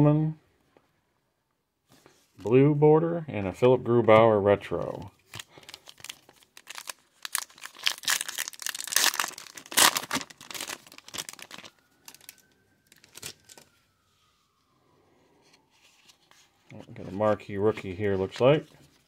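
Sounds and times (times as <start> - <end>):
foil wrapper crinkling and tearing: 5.2 - 13.7.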